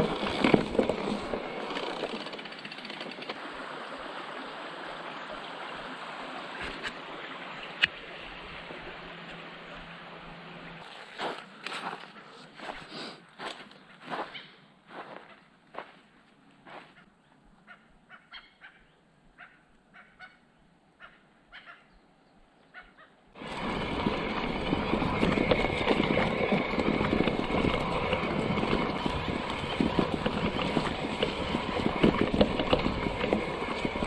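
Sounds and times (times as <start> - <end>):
bike rattling and bumping: 0.0 - 3.4, 23.4 - 34.0
bike tyres rolling through grass: 0.0 - 10.1, 10.8 - 16.9, 23.4 - 34.0.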